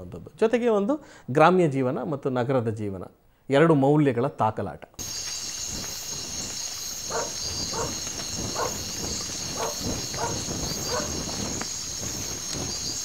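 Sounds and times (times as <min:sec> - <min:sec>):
crickets chirring: 0:05.0 - 0:13.0
dog barking: 0:07.1 - 0:11.2.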